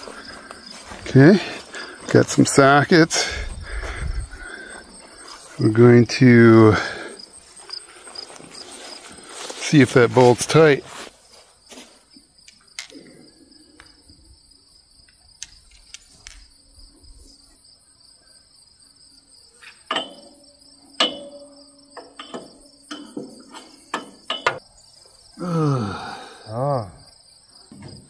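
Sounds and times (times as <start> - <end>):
insects chirring: 0.0 - 28.0
man's voice: 5.5 - 7.0, 9.5 - 11.0.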